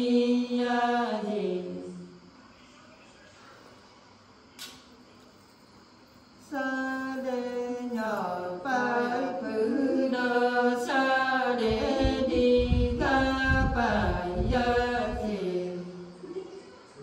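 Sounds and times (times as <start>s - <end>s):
women singing unaccompanied: 0.0s - 2.2s, 6.4s - 16.2s.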